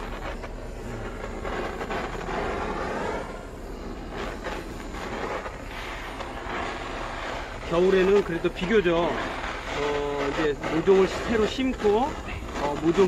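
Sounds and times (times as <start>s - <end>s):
butane torch hissing: 0.0s - 13.0s.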